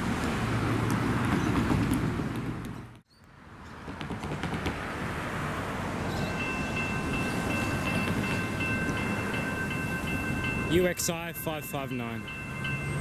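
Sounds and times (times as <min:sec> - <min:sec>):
car traffic passing: 0:00.0 - 0:13.0
electronic crossing bell ringing: 0:06.1 - 0:13.0.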